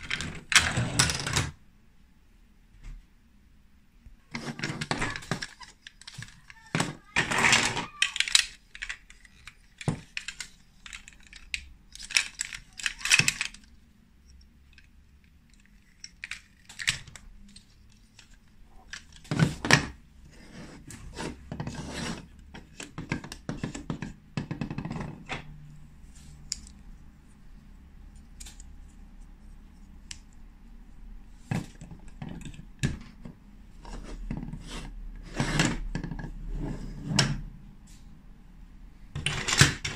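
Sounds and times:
plastic toy bricks clicking: 4.4 - 19.4.

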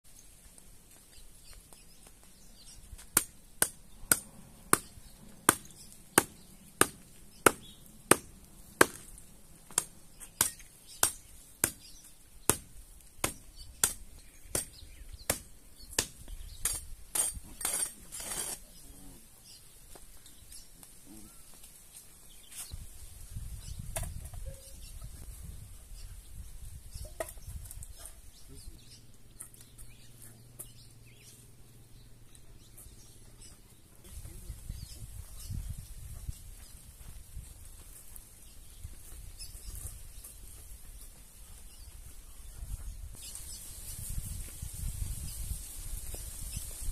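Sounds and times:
hoe chopping into dry dirt: 3.0 - 18.6
hoe scraping dirt: 16.7 - 18.9.

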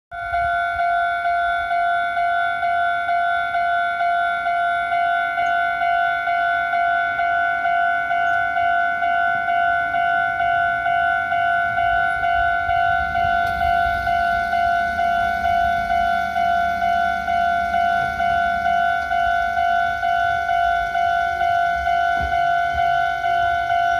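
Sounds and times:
level crossing warning bell: 0.1 - 23.9
low rumble: 11.4 - 23.8.

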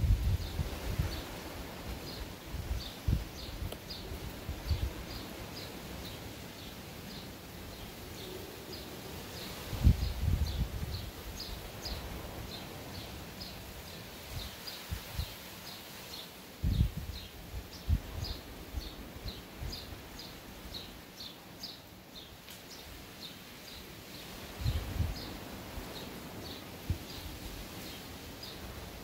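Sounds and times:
wind thumps on microphone: 0.0 - 5.2, 9.7 - 12.0, 16.6 - 17.3, 24.6 - 25.9, 26.8 - 27.5
outdoor hiss: 0.0 - 29.0.

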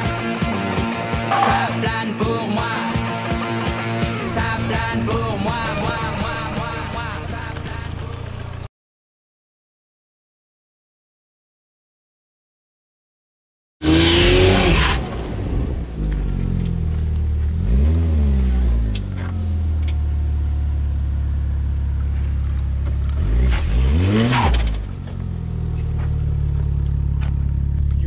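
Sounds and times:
car engine revving: 13.8 - 28.0.

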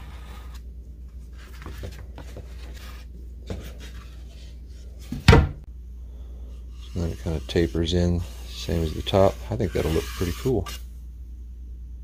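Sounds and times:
low steady hum: 0.0 - 12.0
pencil scratching on wood: 6.7 - 10.8.

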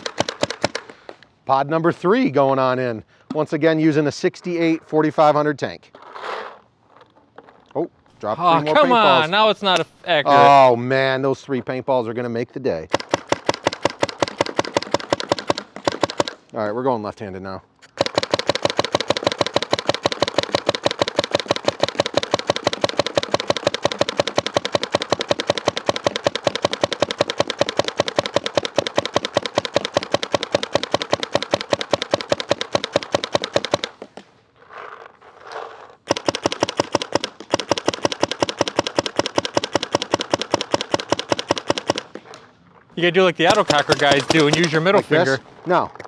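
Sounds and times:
paintball marker rapid firing: 0.0 - 1.0, 12.9 - 16.5, 17.9 - 34.2, 36.1 - 42.4, 43.4 - 45.0.

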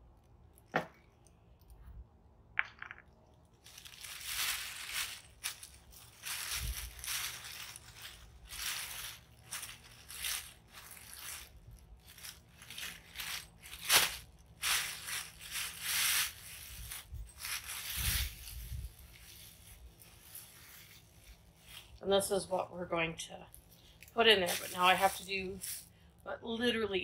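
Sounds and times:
plastic bag crinkling and rustling: 3.6 - 22.2, 23.6 - 25.9.

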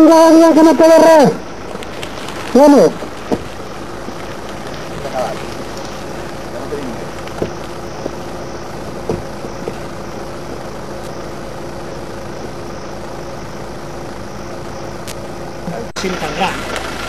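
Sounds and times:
mechanical hum with constant tone: 0.0 - 17.0
faint knocks: 8.9 - 9.9.

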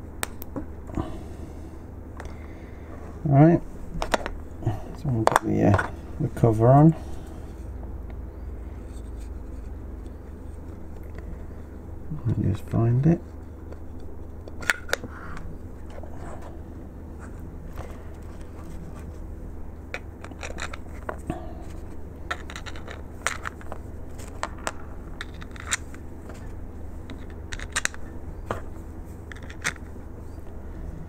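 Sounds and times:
steady low hum: 0.0 - 31.0
plastic parts clicking: 19.9 - 21.2, 22.3 - 25.9, 27.1 - 28.6, 29.3 - 29.9.

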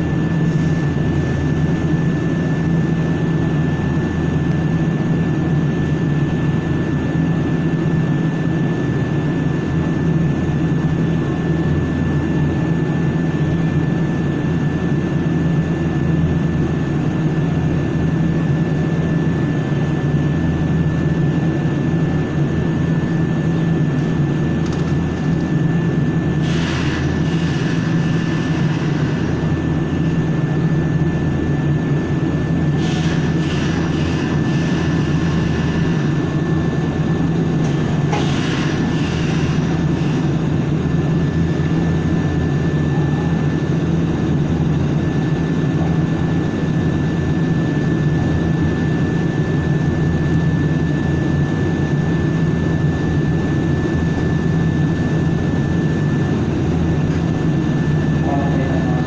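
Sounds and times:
train car low hum: 0.0 - 59.0.

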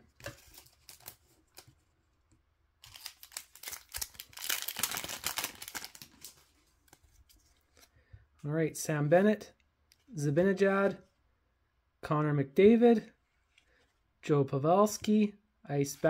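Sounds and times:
wrapper crinkling: 2.8 - 7.1.

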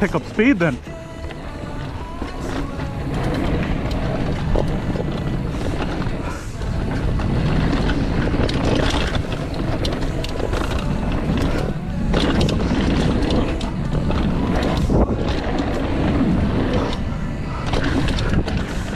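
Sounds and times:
bike rattling over bumps: 0.0 - 18.9
bike tyres rumbling over gravel: 0.0 - 18.9
wind buffeting microphone: 0.0 - 18.9.

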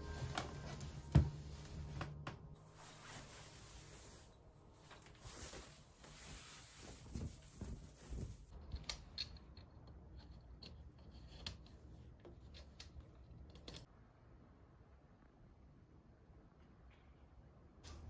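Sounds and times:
curtain rustling: 0.0 - 8.5.

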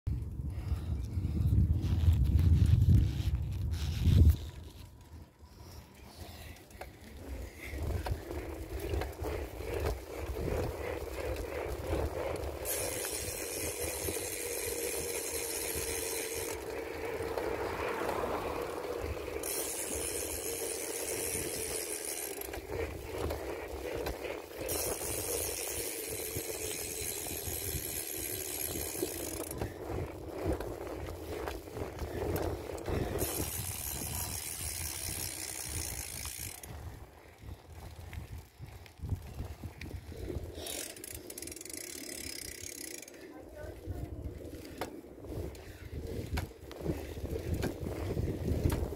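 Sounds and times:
wind rumble: 0.1 - 41.4, 43.5 - 48.9
tyre noise on asphalt: 0.1 - 48.9
bicycle freewheel ticking: 0.4 - 48.9.

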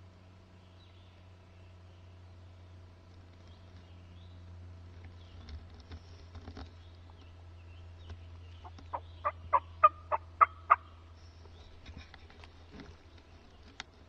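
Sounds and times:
turkey yelps: 8.6 - 10.9.

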